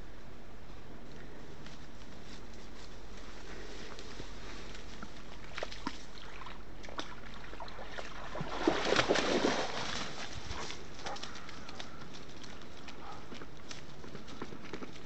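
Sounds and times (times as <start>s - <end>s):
dog splashing through water: 5.4s - 11.5s.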